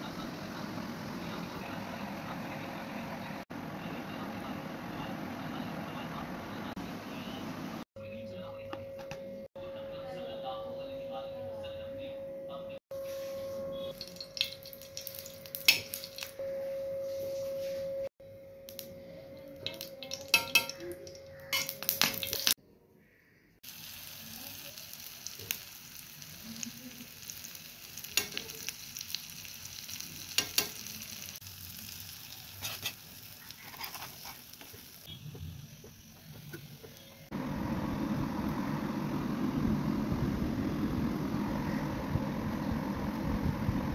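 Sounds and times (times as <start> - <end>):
food sizzling in oil: 13.9 - 16.4, 19.6 - 22.6, 23.6 - 38.5
low rumble: 37.4 - 43.9.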